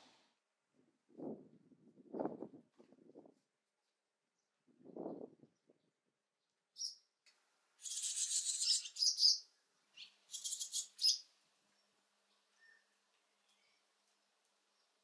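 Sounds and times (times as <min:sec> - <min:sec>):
nestlings begging chatter: 0:10.3 - 0:11.2.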